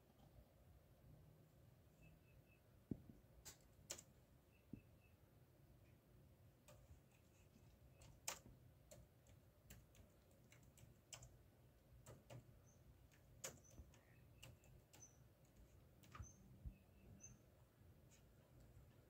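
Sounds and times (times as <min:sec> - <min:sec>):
faint irregular clicks: 0:02.9 - 0:04.2, 0:06.6 - 0:16.5.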